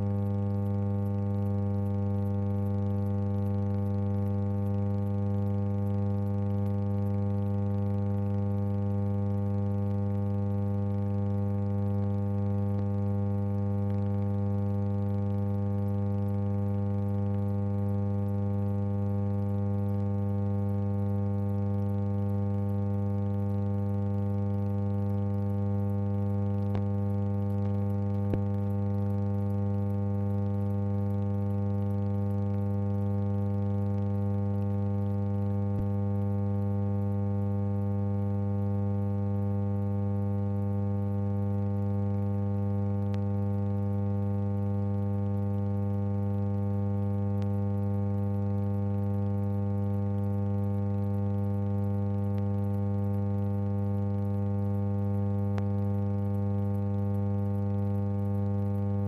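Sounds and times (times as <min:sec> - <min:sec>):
electrical hum: 0:00.0 - 0:59.0.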